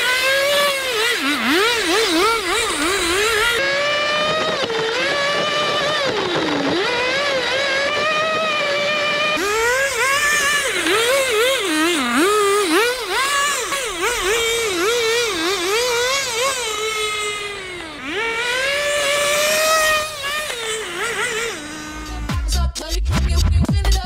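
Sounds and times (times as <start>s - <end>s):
small two-stroke engine revving: 0.0s - 22.8s
music with a beat: 22.1s - 24.0s.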